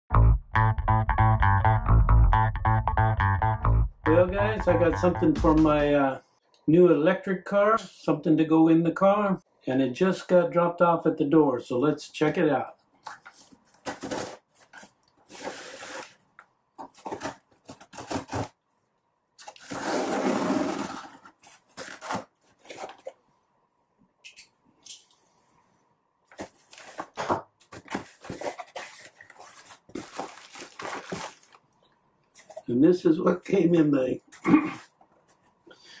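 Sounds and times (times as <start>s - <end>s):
packing tape slit and pulled: 13.9s - 16.2s, 19.4s - 23.1s
plastic packing rustling: 16.8s - 18.6s, 20.8s - 23.2s, 26.3s - 31.7s.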